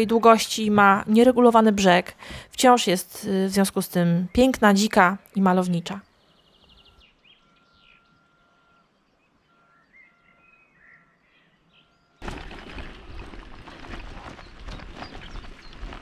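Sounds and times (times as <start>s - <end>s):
birds whistling faintly: 6.0s - 12.2s, 13.6s - 16.0s
bicycle rumbling over bumpy track: 12.2s - 16.0s.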